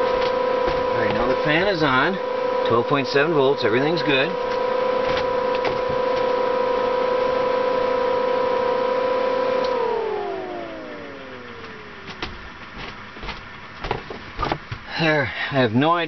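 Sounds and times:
air conditioner humming: 0.0s - 16.0s.

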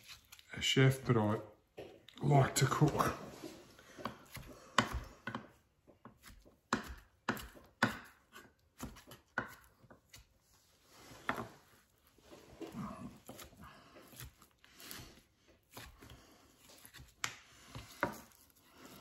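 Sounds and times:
knife chopping on cutting board: 3.9s - 10.3s, 15.7s - 18.4s.

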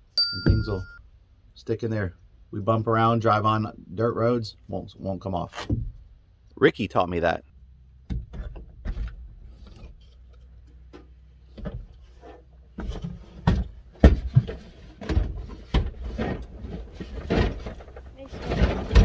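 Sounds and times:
objects knocking and rubbing: 8.1s - 19.0s.

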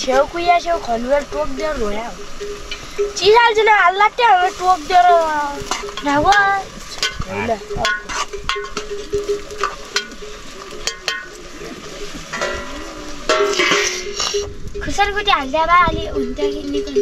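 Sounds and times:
food sizzling in a metal pan: 0.0s - 17.0s
spoon scraping a pan: 4.2s - 14.6s.

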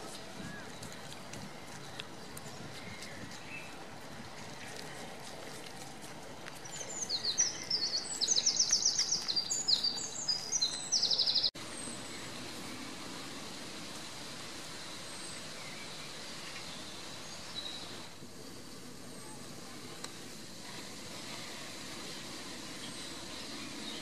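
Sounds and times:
songbird trilling: 6.7s - 11.5s.

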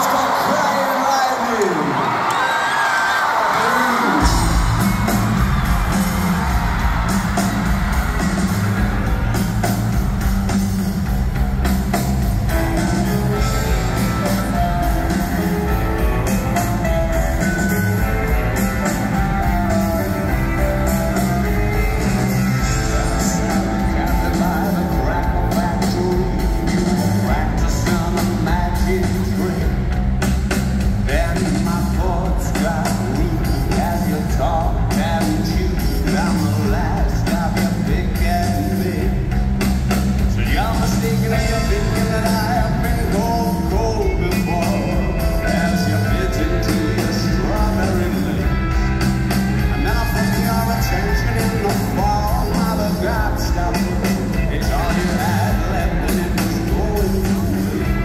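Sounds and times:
live rock band playing: 4.0s - 58.0s
lead vocal singing: 12.5s - 29.9s, 31.0s - 39.2s, 40.3s - 58.0s.

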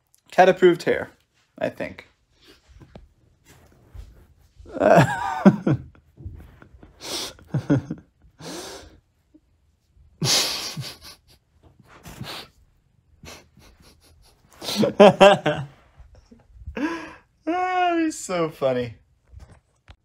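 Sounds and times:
man laughing: 4.7s - 6.2s, 7.0s - 8.2s, 10.2s - 11.5s, 13.2s - 17.9s
sharp exhalations: 7.0s - 7.6s, 8.4s - 9.0s, 11.9s - 12.6s, 16.8s - 17.3s.

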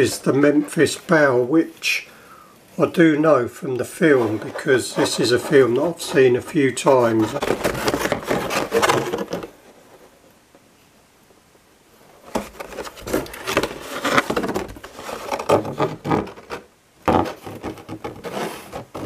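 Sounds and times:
plastic rubbing against cardboard: 2.8s - 10.2s, 12.2s - 19.0s
plastic packaging crinkling: 5.0s - 9.5s, 12.4s - 16.6s.

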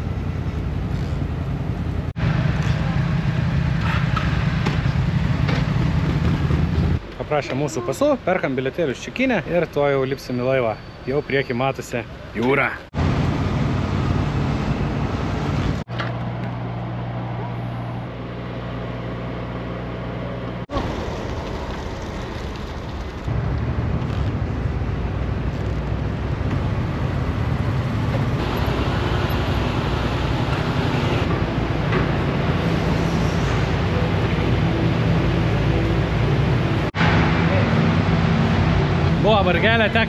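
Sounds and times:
road and wind noise: 0.0s - 40.0s.

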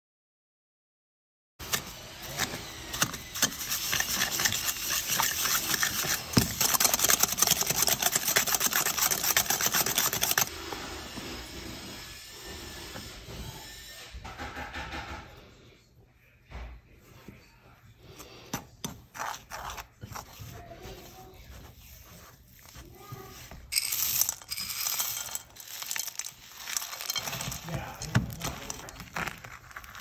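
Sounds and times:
electric hand mixer beating dough: 1.8s - 13.5s.

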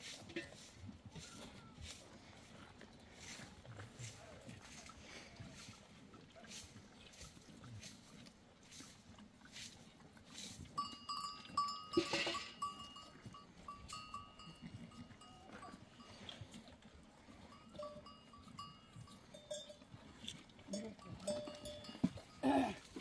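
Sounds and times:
goat bells jingling: 10.6s - 23.0s.

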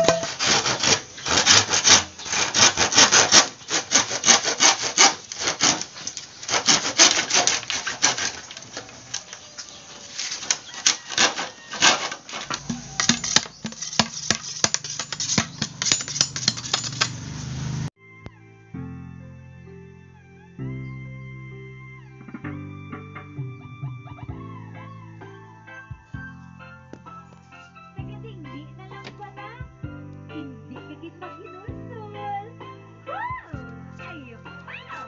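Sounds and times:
handsaw cutting bamboo: 0.0s - 17.9s.

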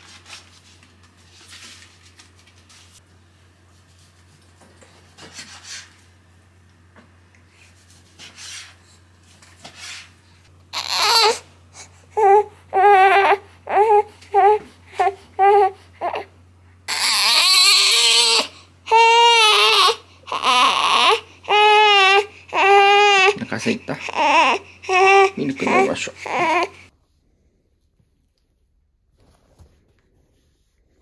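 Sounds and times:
baby crying: 10.7s - 16.3s, 16.9s - 26.9s.

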